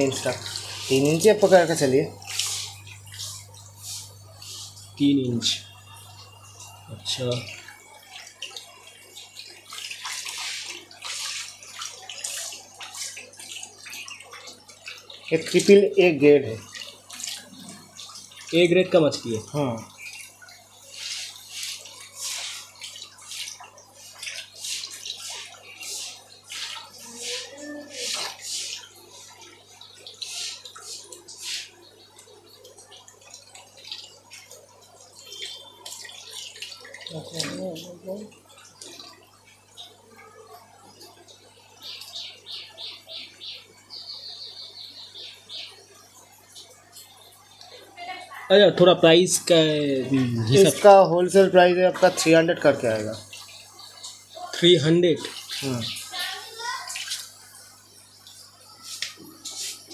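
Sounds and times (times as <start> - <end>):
water splashing in a net: 6.6 - 40.1, 49.4 - 59.9.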